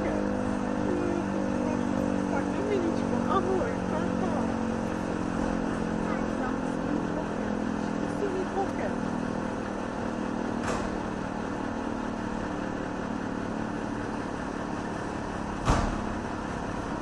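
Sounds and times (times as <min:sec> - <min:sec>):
low engine-like hum: 0:00.0 - 0:17.0
low thump: 0:15.6 - 0:16.1.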